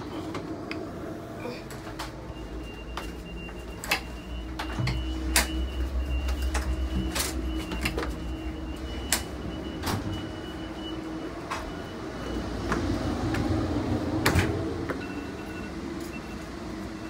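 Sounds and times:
train low rumble: 0.0 - 17.0.

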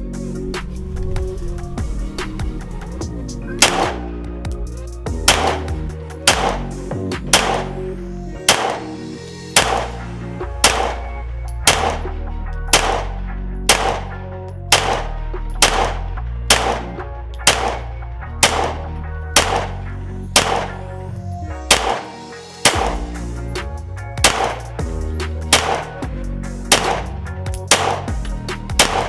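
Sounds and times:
background music with heavy bass: 0.0 - 29.0
pistol shots: 3.6 - 4.1, 5.2 - 12.1, 12.7 - 20.8, 21.7 - 23.2, 24.2 - 24.9, 25.5 - 26.0, 26.7 - 29.0.

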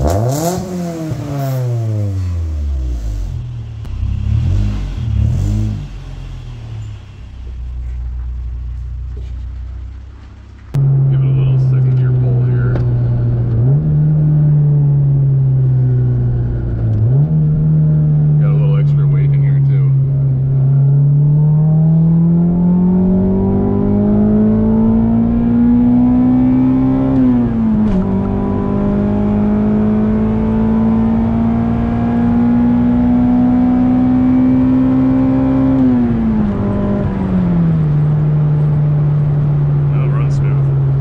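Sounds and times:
car engine revving: 0.0 - 41.0.

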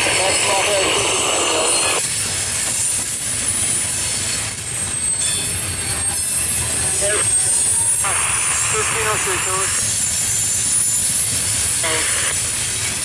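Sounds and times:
freight train wheels rumbling: 0.0 - 13.0
faint wheel squeal: 2.7 - 13.0.

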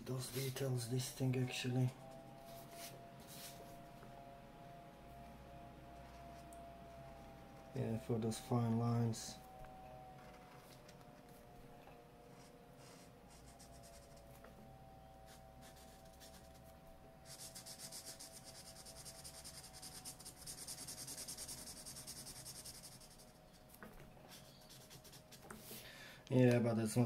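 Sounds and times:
marker pen scratching on paper: 12.4 - 14.4, 15.2 - 25.7.

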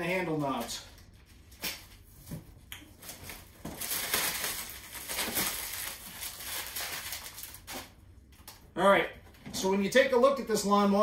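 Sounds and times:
plastic bag crinkling: 3.0 - 8.0.

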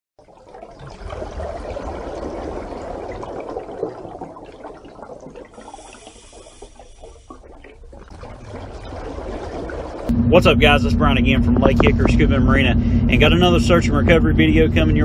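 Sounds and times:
rushing gurgling water: 0.2 - 15.0
low rumble: 10.0 - 15.0
faint high steady tones: 10.1 - 15.0.

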